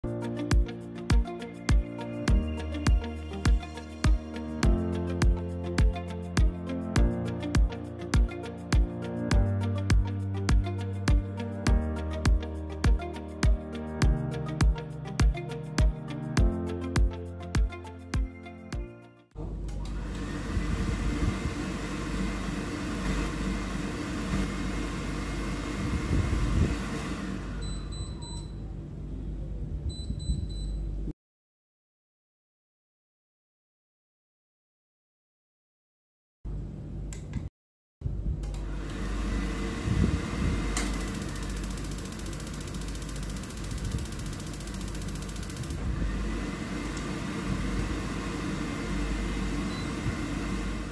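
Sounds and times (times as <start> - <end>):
blower fan hissing: 19.5 - 27.6, 38.1 - 50.9
high-pitched ignition ticking: 40.8 - 45.8.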